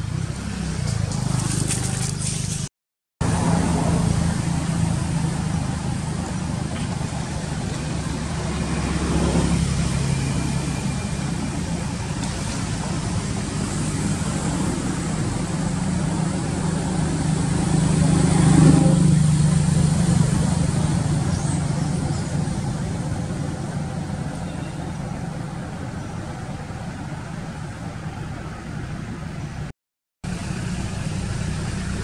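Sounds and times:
low engine hum: 0.0 - 32.0.

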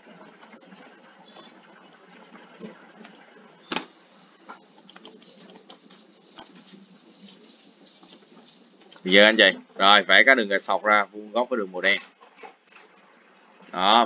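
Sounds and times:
faint steady hiss: 0.0 - 14.0
keyboard typing: 0.4 - 3.9, 4.5 - 9.0
mouse clicks: 1.3 - 3.9, 4.8 - 6.6.

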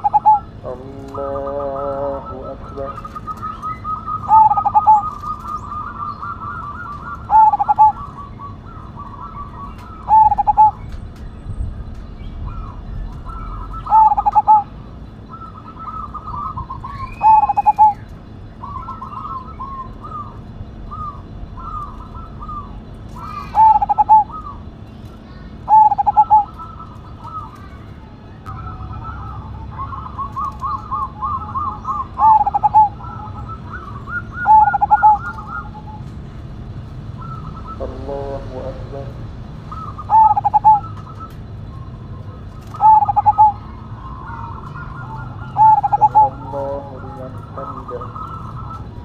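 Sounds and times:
dove trilled coos: 0.0 - 49.0
soft chirped bird notes: 0.0 - 49.0.

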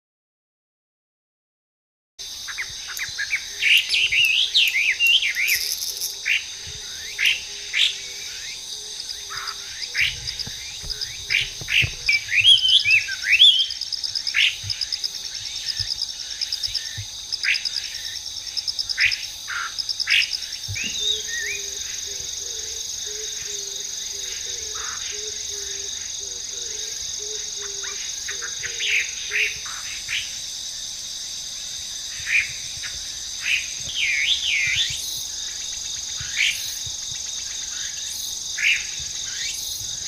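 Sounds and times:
high insect drone: 2.2 - 40.0
bird singing whistled phrases: 3.2 - 5.7, 12.1 - 13.8.

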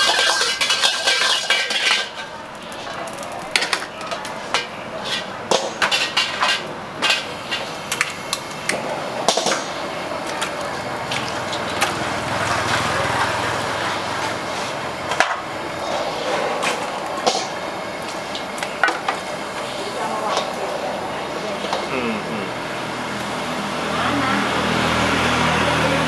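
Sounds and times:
tap water running into wok: 0.0 - 4.6
spatula scraping a wok: 0.0 - 7.8, 13.8 - 21.9.

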